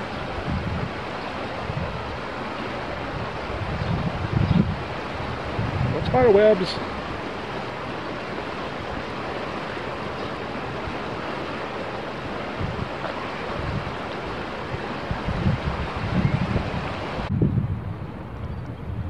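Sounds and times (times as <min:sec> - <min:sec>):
creek flowing over rocks: 0:00.0 - 0:17.3
wind buffeting microphone: 0:00.0 - 0:19.0.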